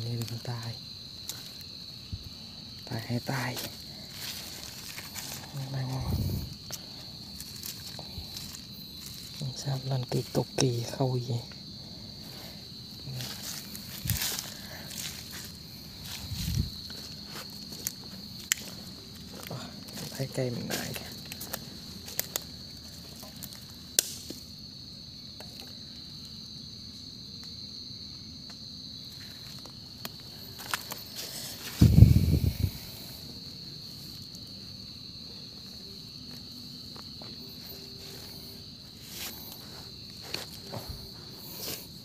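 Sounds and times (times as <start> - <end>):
crickets chirring: 0.0 - 42.0
footsteps in dry leaves: 12.7 - 21.0.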